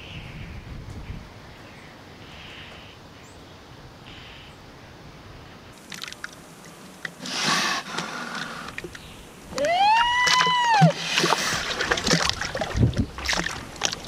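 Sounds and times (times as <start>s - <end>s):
faint wind: 0.0s - 14.0s
water clicking and sloshing: 5.8s - 7.3s, 7.9s - 14.0s
water rushing gush: 5.8s - 14.0s.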